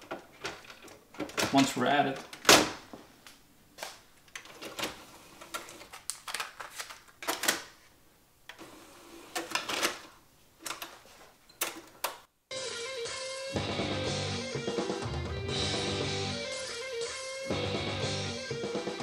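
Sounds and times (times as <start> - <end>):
guitar music: 12.5 - 19.0.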